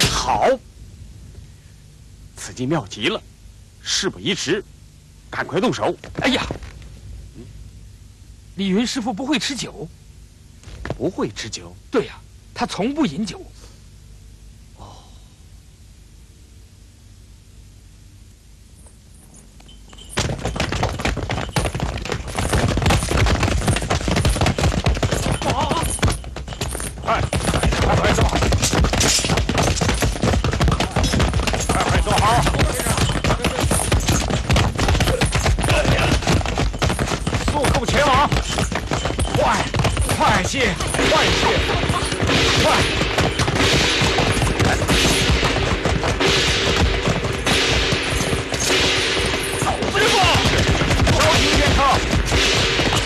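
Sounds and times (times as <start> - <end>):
rapid clatter of sharp impacts: 19.6 - 53.0
people shouting: 35.0 - 36.3, 39.3 - 43.0, 49.6 - 52.0.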